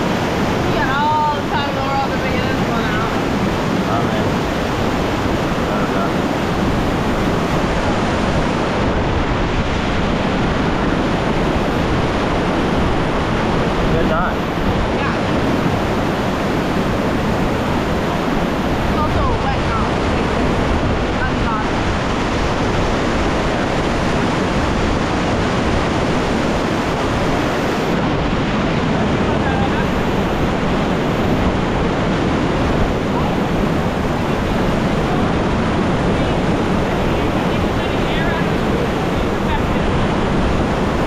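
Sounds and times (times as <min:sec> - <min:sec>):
river rapids roaring: 0:00.0 - 0:41.0
whitewater rushing: 0:00.0 - 0:41.0.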